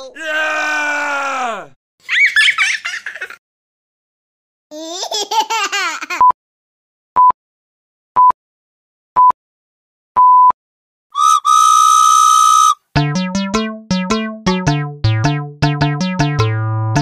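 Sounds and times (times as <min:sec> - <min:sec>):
whistle blast: 0:11.2 - 0:12.8
synthesizer tune with bass line: 0:13.0 - 0:17.0.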